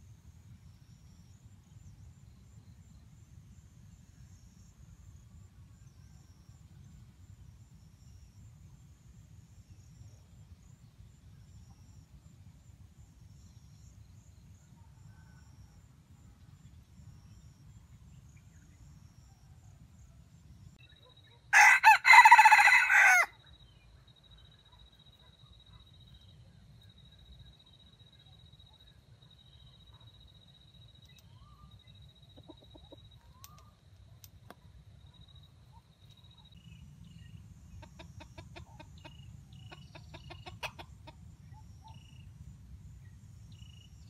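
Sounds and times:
rooster crowing: 0:21.5 - 0:23.4.

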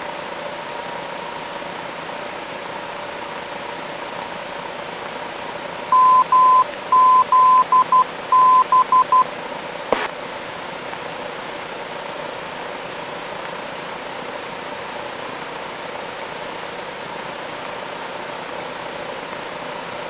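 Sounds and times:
morse code beeps: 0:05.9 - 0:09.2
single click: 0:09.9 - 0:10.2.

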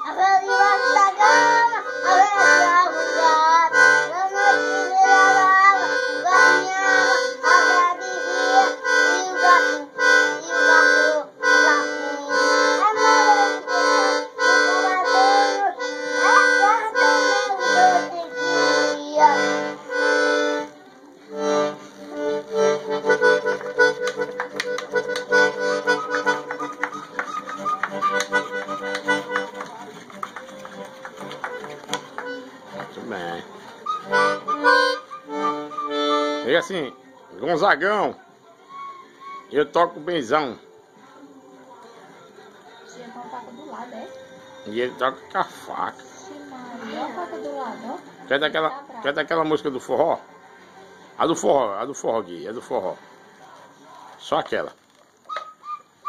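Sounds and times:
person singing wordlessly: 0:00.0 - 0:19.4
accordion playing: 0:00.0 - 0:38.1, 0:43.2 - 0:47.7.

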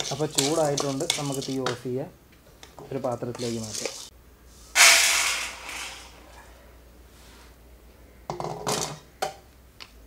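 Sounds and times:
grains rattling into steel bowl: 0:00.0 - 0:01.8, 0:04.8 - 0:06.2.

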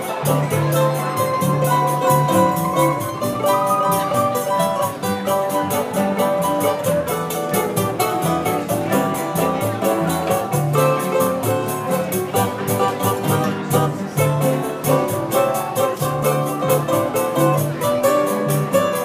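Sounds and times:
guitar chords: 0:00.0 - 0:19.0
plucked double bass: 0:00.0 - 0:19.0
plucked string melody: 0:00.0 - 0:19.0.

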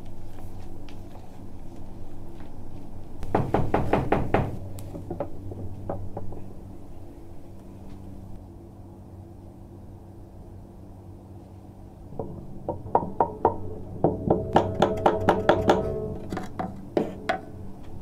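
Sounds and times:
low steady hum: 0:00.0 - 0:18.0
knocks: 0:03.2 - 0:06.5, 0:12.1 - 0:17.5.

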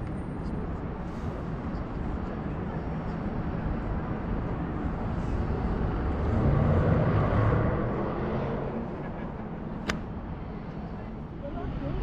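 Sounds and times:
distant traffic hum: 0:00.0 - 0:12.0
rumbling wind: 0:00.0 - 0:12.0.

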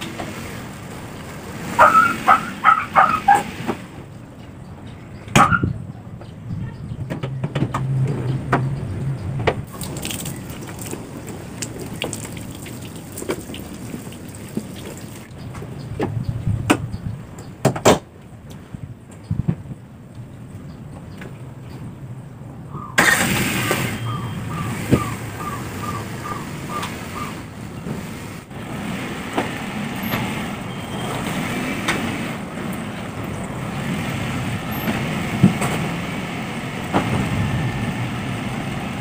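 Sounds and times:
garden hose spraying water: 0:09.7 - 0:15.3.

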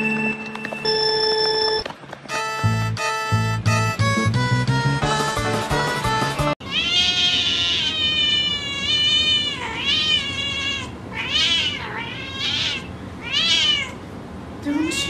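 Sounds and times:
cat meowing: 0:06.6 - 0:14.1, 0:14.7 - 0:15.0.

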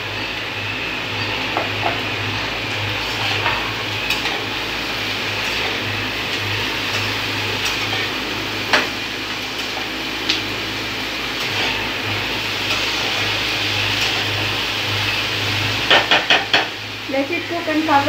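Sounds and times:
vegetables sizzling in pan: 0:00.0 - 0:18.0
utensils knocking against pan: 0:15.8 - 0:16.8.

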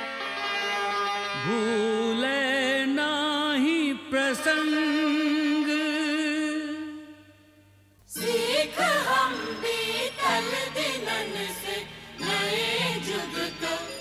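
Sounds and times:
sustained accompaniment notes: 0:00.0 - 0:02.6, 0:08.2 - 0:14.0
person singing with vibrato: 0:01.3 - 0:07.5, 0:08.1 - 0:14.0.

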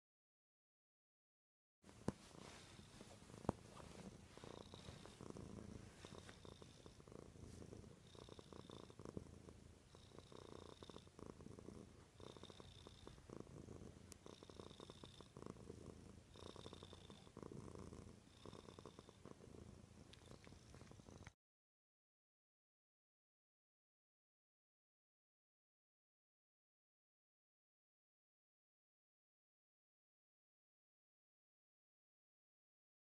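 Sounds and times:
cat purring: 0:01.9 - 0:21.4.

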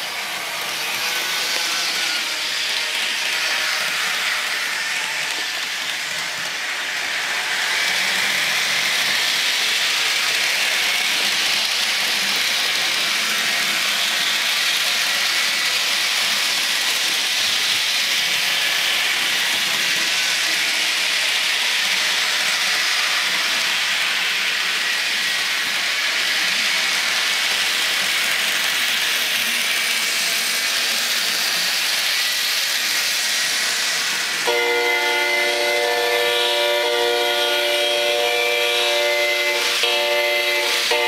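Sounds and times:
running train rushing noise: 0:00.0 - 0:41.0
diesel train horn: 0:34.5 - 0:41.0.

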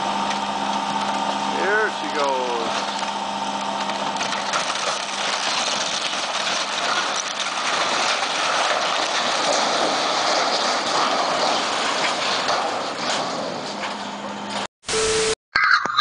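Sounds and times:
structure collapsing crash: 0:03.8 - 0:14.6.

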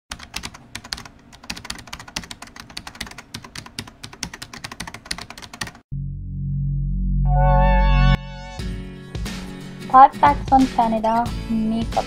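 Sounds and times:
keyboard typing: 0:00.1 - 0:05.8.

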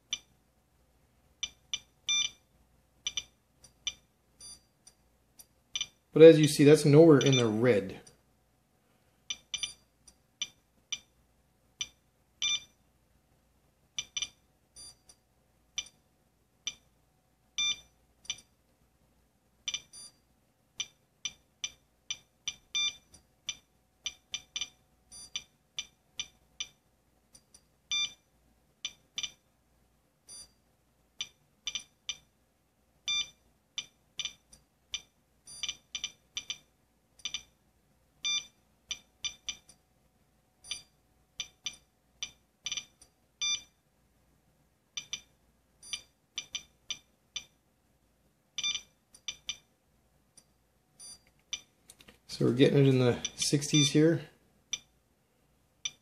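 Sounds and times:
geiger counter beep-clicks: 0:00.1 - 0:00.3, 0:01.4 - 0:02.4, 0:03.0 - 0:04.7, 0:05.8 - 0:06.0, 0:07.2 - 0:07.9, 0:09.3 - 0:11.1, 0:11.8 - 0:12.8, 0:14.0 - 0:15.2, 0:15.8 - 0:16.0, 0:16.7 - 0:16.9, 0:17.6 - 0:18.5, 0:19.7 - 0:20.2, 0:20.8 - 0:26.8, 0:27.4 - 0:28.2, 0:28.8 - 0:29.4, 0:30.3 - 0:30.6, 0:31.2 - 0:32.3, 0:33.1 - 0:37.6, 0:38.2 - 0:39.8, 0:40.6 - 0:43.8, 0:45.0 - 0:47.6, 0:48.6 - 0:49.7, 0:51.0 - 0:51.7, 0:53.1 - 0:54.0, 0:54.7 - 0:54.9, 0:55.8 - 0:56.0.

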